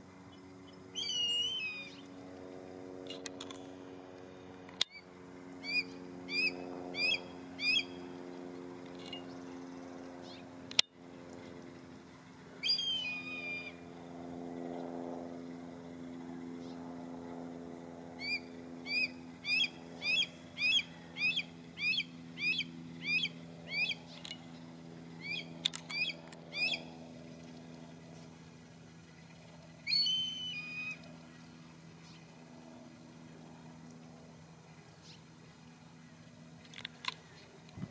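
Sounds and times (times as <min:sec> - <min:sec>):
steady low hum: 0:00.0 - 0:37.9
hawk calling: 0:01.0 - 0:02.0, 0:05.6 - 0:08.1, 0:12.6 - 0:13.8, 0:18.2 - 0:24.3, 0:25.2 - 0:26.9, 0:29.8 - 0:31.1.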